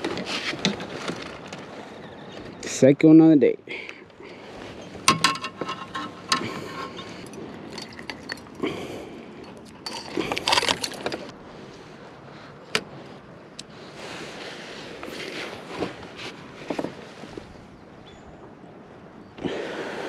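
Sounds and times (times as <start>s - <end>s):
small clicks and clinks: 5.1s - 8.6s, 9.4s - 11.3s.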